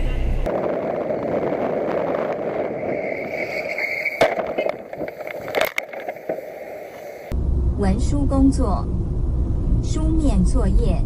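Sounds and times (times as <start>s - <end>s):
loud bang: 0.0s - 5.7s
vehicle road and wind noise: 0.0s - 11.0s
crash impact: 0.5s - 6.6s
high wavering squeal: 2.4s - 7.3s.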